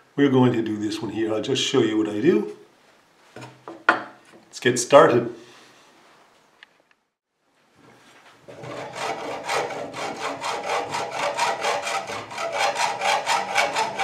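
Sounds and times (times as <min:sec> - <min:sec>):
hacksaw cutting metal: 0:08.5 - 0:14.0.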